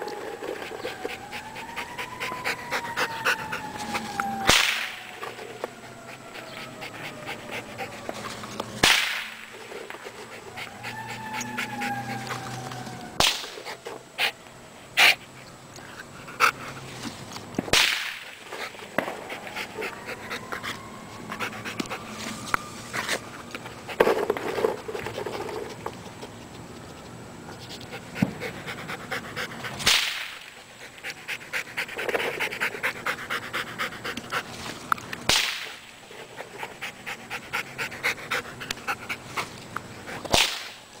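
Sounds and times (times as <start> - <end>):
dog panting: 0.0 - 17.2, 18.2 - 40.3
firecrackers cracking: 4.5 - 5.2, 8.8 - 9.4, 13.2 - 13.6, 17.6 - 18.4, 35.3 - 35.8, 40.3 - 40.8.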